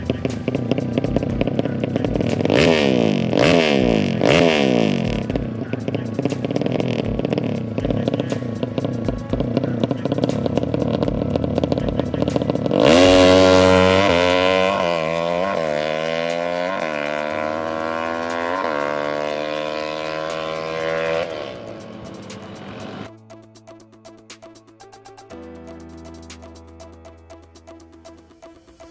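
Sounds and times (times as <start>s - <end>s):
motorcycle idling and revving: 0.0s - 24.8s
music: 0.0s - 28.9s.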